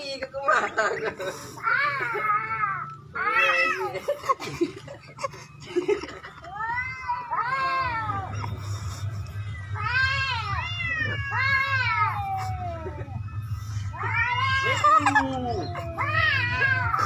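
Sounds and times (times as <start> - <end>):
steady low hum: 3.9 - 17.0
kitten meowing: 9.8 - 12.7.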